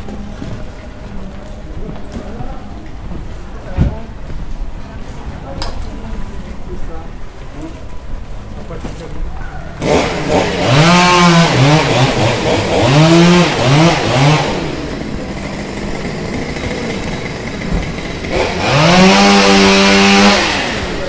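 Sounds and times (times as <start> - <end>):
traffic noise: 0.0 - 21.0
vehicle engine revving: 9.8 - 21.0.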